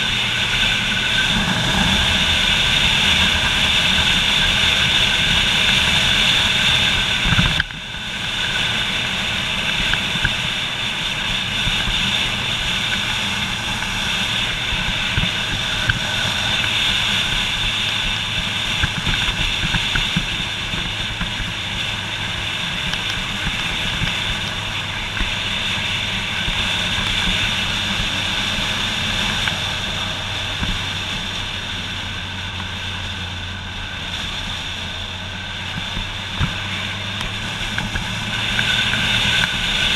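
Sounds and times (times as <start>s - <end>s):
motorcycle engine hum: 0.0s - 39.9s
wind and road noise: 0.0s - 39.9s.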